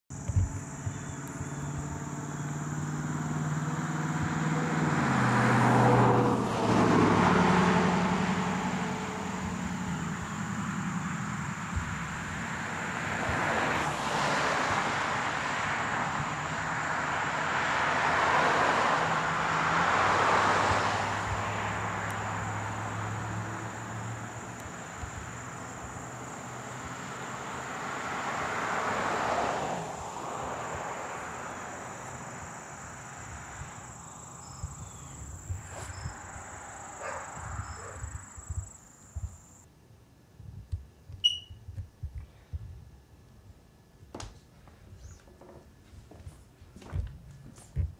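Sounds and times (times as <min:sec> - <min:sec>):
road vehicles passing: 0:00.1 - 0:39.7.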